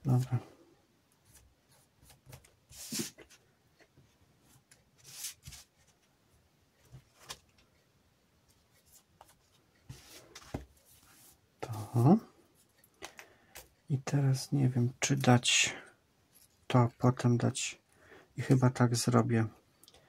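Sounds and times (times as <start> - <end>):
paper rustling: 2.0 - 3.4, 4.7 - 6.1.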